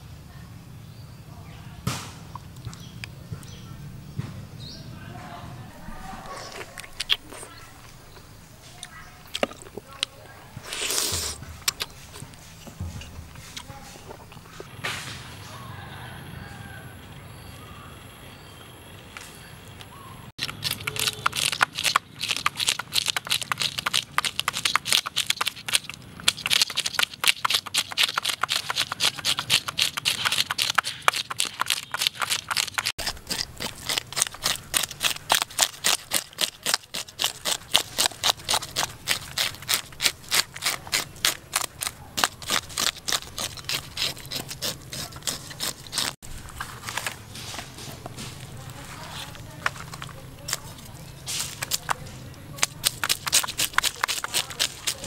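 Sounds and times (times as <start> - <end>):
fish scaler rasping on fish skin: 20.4 - 46.2, 52.6 - 55.0.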